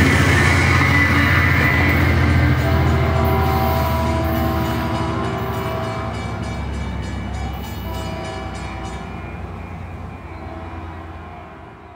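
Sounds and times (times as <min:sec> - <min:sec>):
diesel locomotive engine drone: 0:00.0 - 0:11.9
train rail rumble: 0:00.0 - 0:11.9.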